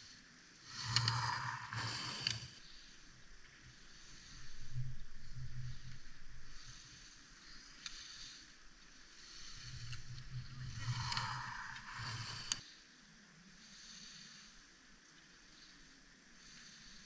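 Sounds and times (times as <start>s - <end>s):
low rumble: 2.8s - 7.1s.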